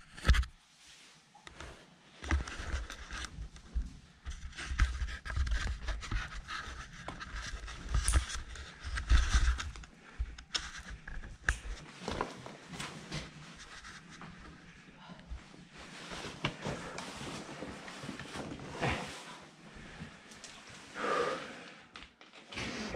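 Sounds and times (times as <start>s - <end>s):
heavy panting breath: 20.9s - 21.9s.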